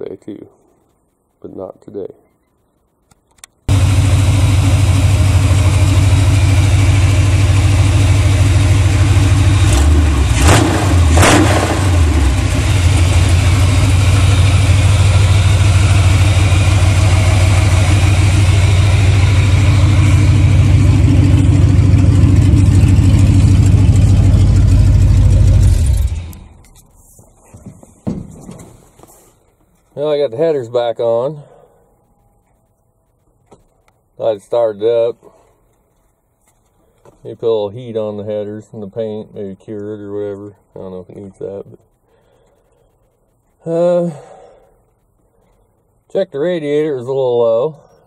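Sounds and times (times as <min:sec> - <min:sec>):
car engine idling loudly: 0:03.7 - 0:26.4.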